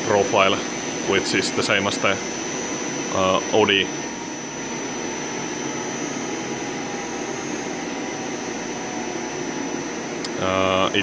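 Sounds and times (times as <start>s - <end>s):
lathe machine running: 0.0s - 11.0s
thin high whine: 0.0s - 11.0s.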